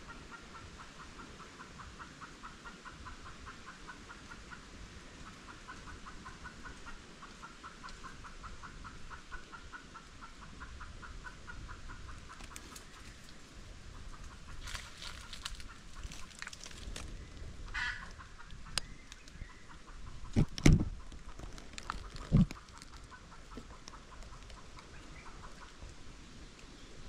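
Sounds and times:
chickens clucking: 0.0s - 26.2s
rustling and clicks: 14.2s - 17.5s, 20.3s - 24.9s.

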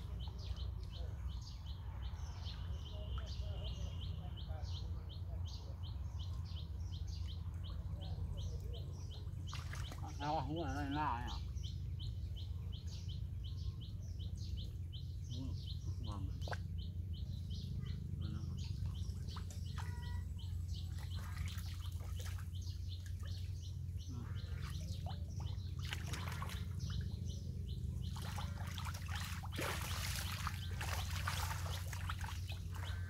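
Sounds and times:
birds chirping: 0.0s - 33.0s
steady low hum: 0.0s - 33.0s
splashing in muddy water: 9.2s - 10.4s, 18.7s - 33.0s.

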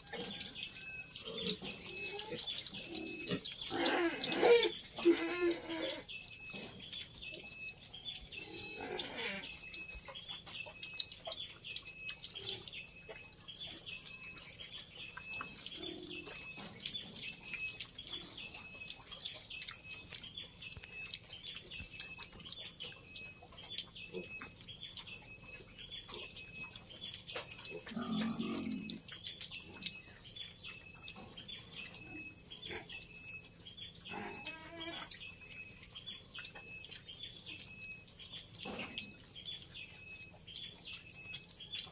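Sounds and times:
pigs grunting: 0.0s - 6.8s, 8.4s - 9.8s, 26.1s - 30.0s, 31.8s - 33.4s, 34.0s - 35.2s
pig crying: 1.1s - 6.1s, 8.4s - 9.8s, 27.7s - 29.1s, 34.1s - 35.2s.

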